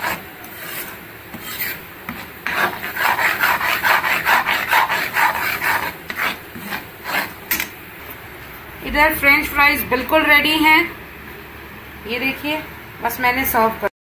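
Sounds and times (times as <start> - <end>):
spatula scraping a pan: 0.0 - 7.7.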